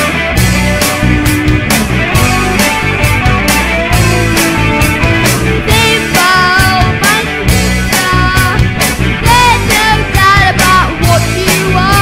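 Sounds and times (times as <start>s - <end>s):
rock band with drum beat: 0.0s - 12.0s
person singing: 4.0s - 12.0s.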